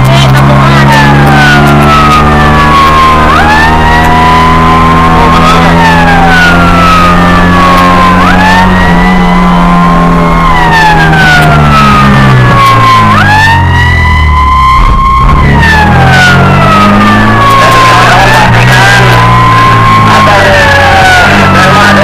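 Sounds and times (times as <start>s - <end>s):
fire truck siren wailing: 0.0s - 22.0s
truck engine drone: 0.0s - 22.0s.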